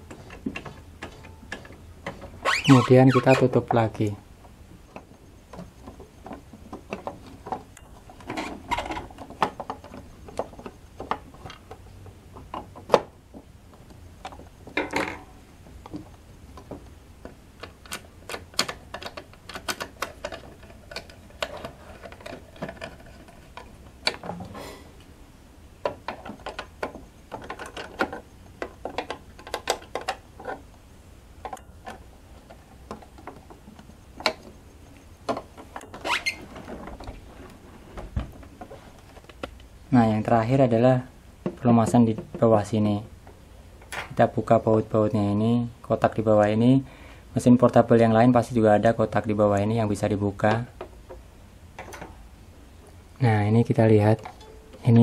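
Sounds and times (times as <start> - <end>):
handling noise: 0.0 - 25.1
plastic clicking and scraping: 15.8 - 24.4, 25.8 - 30.8.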